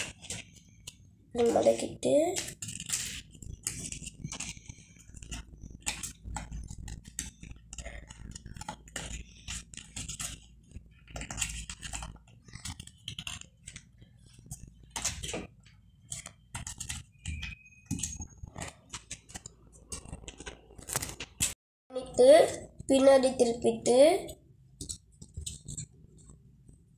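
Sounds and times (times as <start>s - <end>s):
paper rustling and crinkling: 0.0s - 1.8s, 2.4s - 21.6s.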